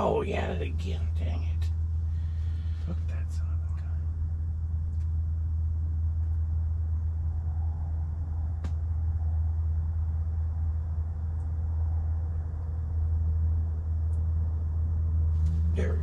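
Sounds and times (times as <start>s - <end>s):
low rumble: 0.0s - 16.0s
sharp click: 8.6s - 8.8s.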